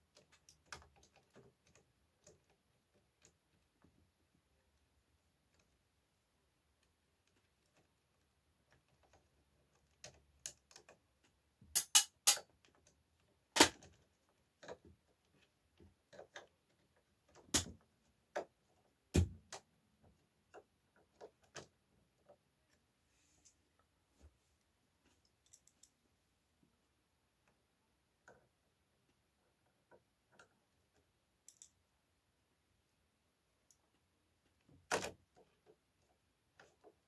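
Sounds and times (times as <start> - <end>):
sharp plastic clicks: 8.7 - 14.0, 17.2 - 19.7.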